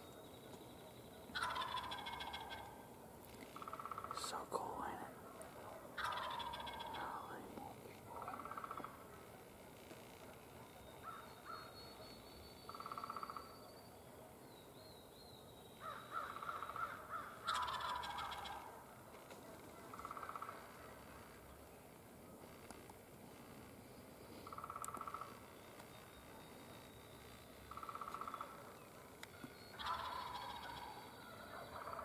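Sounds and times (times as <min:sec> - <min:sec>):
turkey gobbling: 0:01.4 - 0:02.7, 0:06.0 - 0:07.0, 0:17.5 - 0:18.7, 0:29.8 - 0:32.0
turkey rasping calls: 0:01.4 - 0:02.7, 0:06.0 - 0:07.2, 0:16.2 - 0:18.7, 0:29.8 - 0:32.0.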